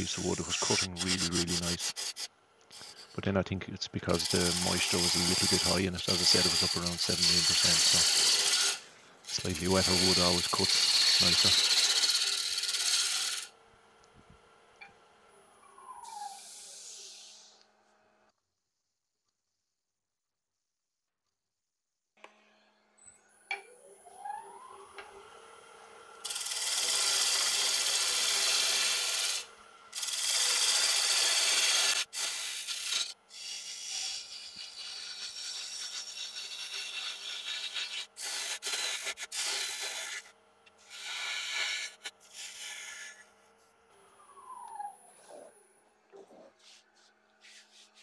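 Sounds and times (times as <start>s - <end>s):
tool cutting spinning wood: 0.0s - 3.4s, 4.0s - 13.5s, 26.2s - 43.3s.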